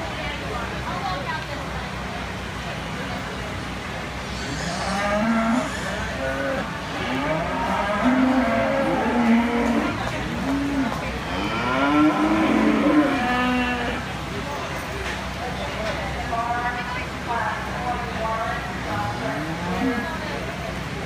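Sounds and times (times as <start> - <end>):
cattle mooing: 4.4 - 14.0.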